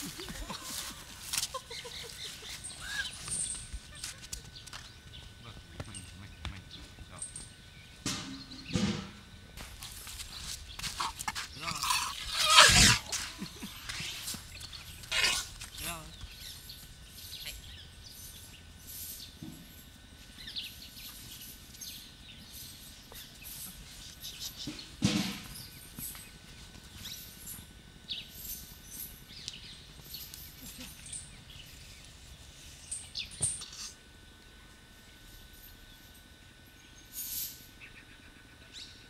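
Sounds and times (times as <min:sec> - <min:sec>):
birds chirping: 0:00.0 - 0:09.4, 0:10.1 - 0:19.4
outdoor background noise: 0:00.0 - 0:39.0.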